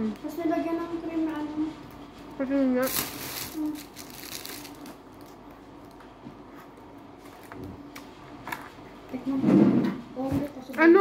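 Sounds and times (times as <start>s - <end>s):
plastic container crinkling: 2.8s - 5.9s.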